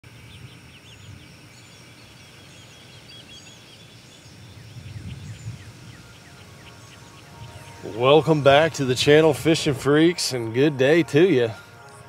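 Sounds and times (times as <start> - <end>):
bird calls chatter: 0.3 - 9.7.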